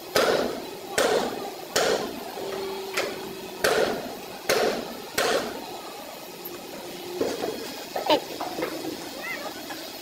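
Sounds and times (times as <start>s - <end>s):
hammer tapping on metal: 0.2s - 2.1s, 2.9s - 5.5s.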